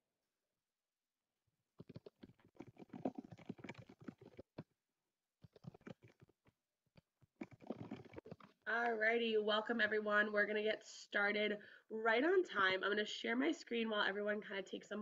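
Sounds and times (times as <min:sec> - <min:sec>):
typing on computer keyboard: 0:01.8 - 0:04.6, 0:05.4 - 0:06.3.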